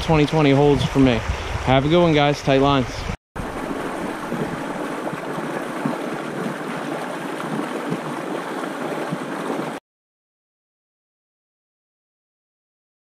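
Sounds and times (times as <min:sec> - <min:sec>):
stream flowing over rocks: 0:03.4 - 0:09.8.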